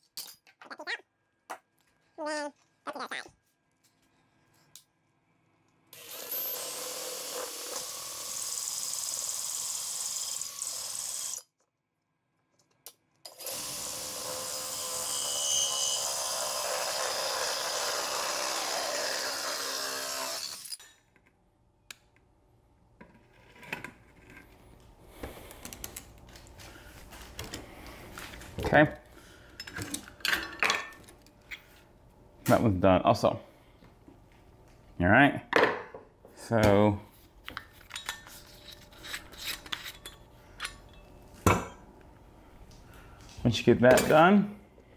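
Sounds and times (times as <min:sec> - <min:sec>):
cordless drill boring glass: 0:06.0 - 0:11.5, 0:13.3 - 0:20.8.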